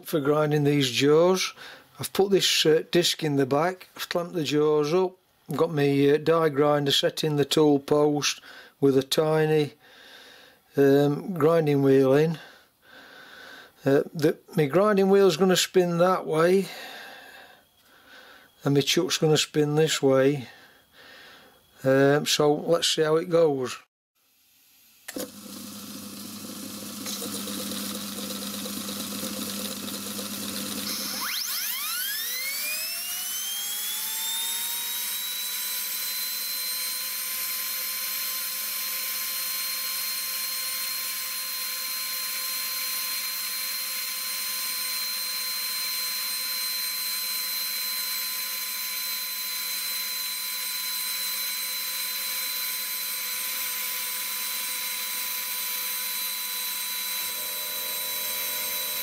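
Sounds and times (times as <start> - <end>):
die grinder whine: 25.1 - 59.0.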